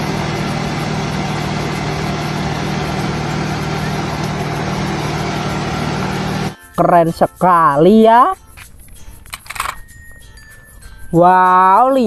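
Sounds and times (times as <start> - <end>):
mixer drum turning: 0.0 - 6.6
truck engine running: 0.0 - 6.6.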